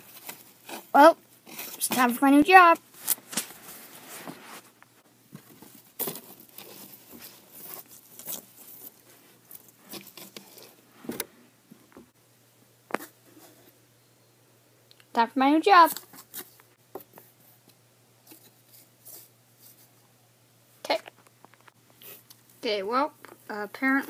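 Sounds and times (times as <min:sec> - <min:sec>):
fabric and plush toys rustling: 0:00.0 - 0:11.8.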